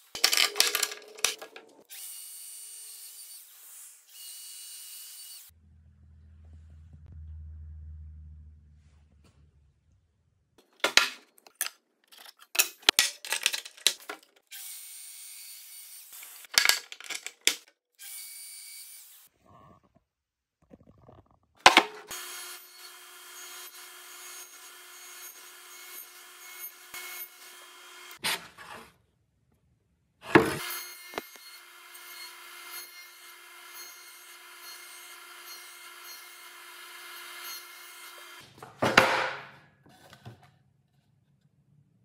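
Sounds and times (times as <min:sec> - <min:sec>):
saw cutting wooden board: 0:21.8 - 0:28.9, 0:30.3 - 0:38.4.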